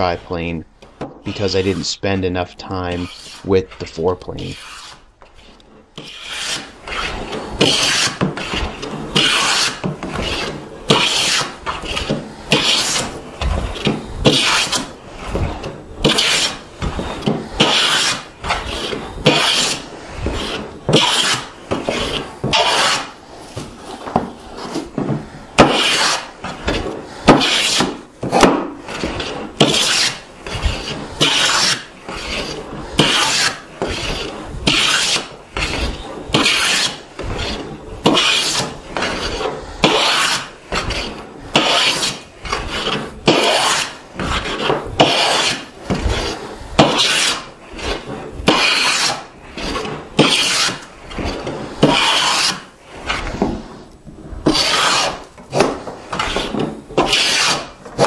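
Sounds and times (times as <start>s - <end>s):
hand plane rasping strokes: 2.8s - 58.0s.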